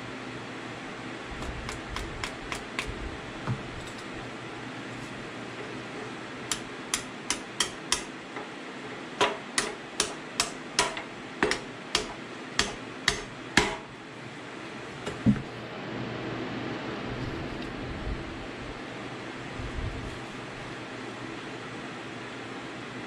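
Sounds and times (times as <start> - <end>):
hammer tapping metal: 1.4 - 2.9, 6.5 - 13.9.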